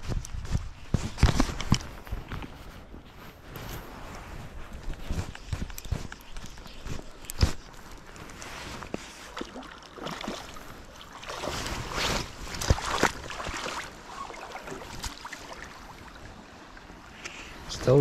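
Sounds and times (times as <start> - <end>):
water splashing and rushing: 5.1 - 18.0.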